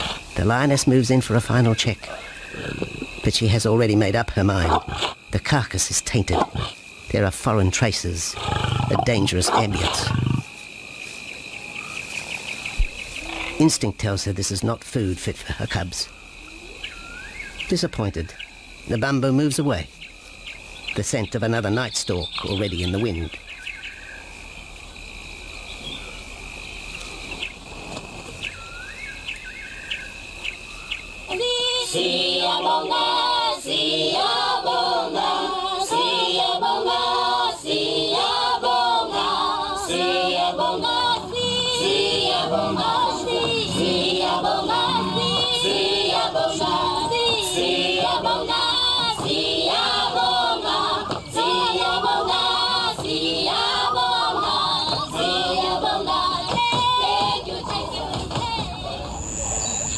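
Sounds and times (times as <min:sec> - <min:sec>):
insect drone: 0:00.0 - 0:59.9
choir singing: 0:31.3 - 0:59.2
bird chirps: 0:58.8 - 0:59.9.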